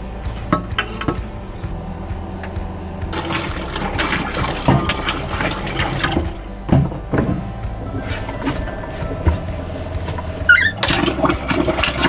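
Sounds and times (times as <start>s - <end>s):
water splashing in metal sink: 3.1s - 7.5s, 10.5s - 12.0s.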